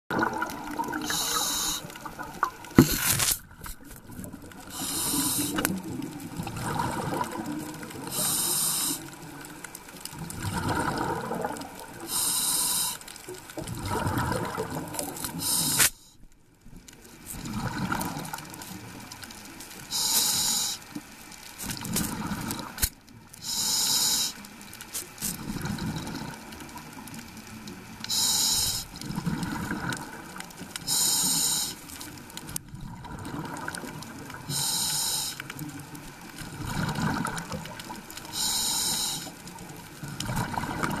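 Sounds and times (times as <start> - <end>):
exhaled air bubbling: 0.1 - 15.8, 17.2 - 19.2, 21.7 - 22.8, 25.3 - 27.2, 27.8 - 41.0
regulator breath hiss: 1.0 - 1.9, 4.7 - 5.7, 8.1 - 9.2, 12.1 - 13.1, 15.3 - 16.2, 19.9 - 20.9, 23.4 - 24.4, 28.1 - 29.0, 30.8 - 31.9, 34.5 - 35.5, 38.3 - 39.4.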